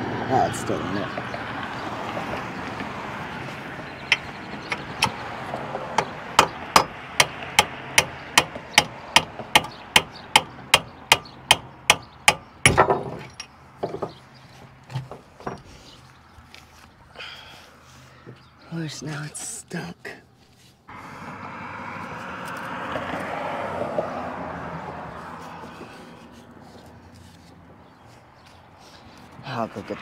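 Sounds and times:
hammer striking steel: 6.4 - 13.4.

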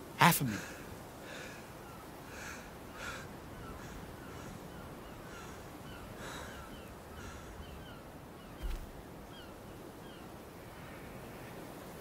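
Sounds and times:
crow-like caws: 1.2 - 8.0
birds chirping: 1.3 - 10.4
low thump: 8.6 - 8.9.

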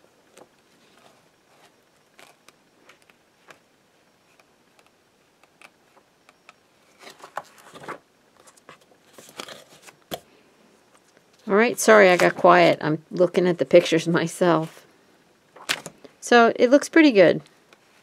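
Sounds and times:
book pages turning: 0.3 - 3.6, 6.9 - 10.3.

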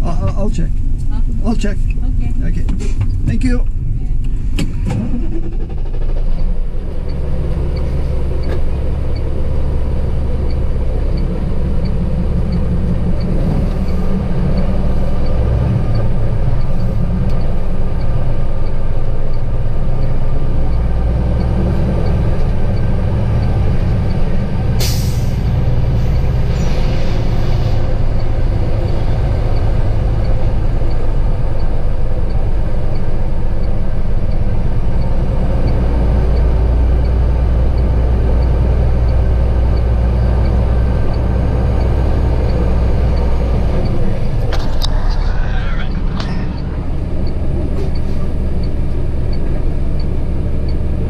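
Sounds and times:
diesel truck engine rumbling: 0.0 - 51.0
air brake hiss: 24.8 - 27.8.

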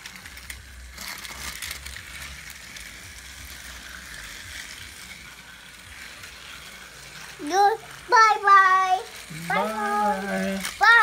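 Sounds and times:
toy train motor whine: 0.0 - 11.0
wheels clicking and parts rattling: 0.0 - 11.0.

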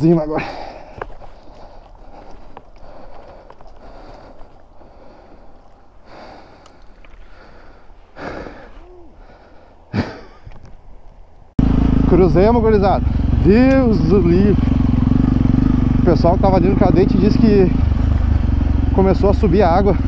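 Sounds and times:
man panting heavily: 0.4 - 10.3
motorcycle engine revving: 11.6 - 20.0.

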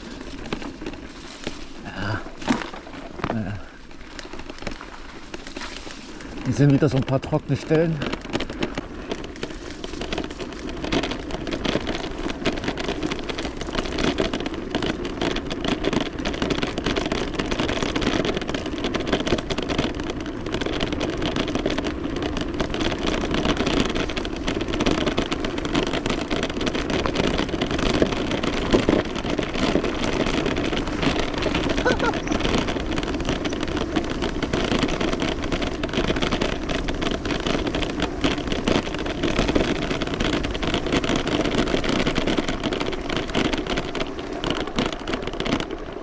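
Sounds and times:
bike rattling and knocking: 0.0 - 46.0
bike tyres rolling on dirt: 0.0 - 46.0
wind over microphone: 22.6 - 45.6.

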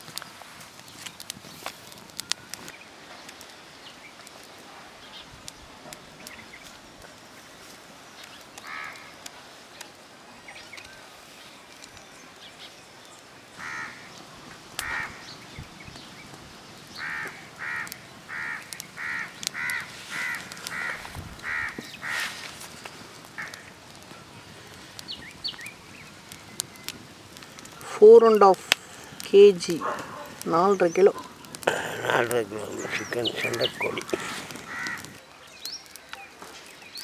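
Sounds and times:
wood fire crackling: 0.0 - 37.0
bird giving harsh calls: 17.0 - 22.3, 29.8 - 35.2.

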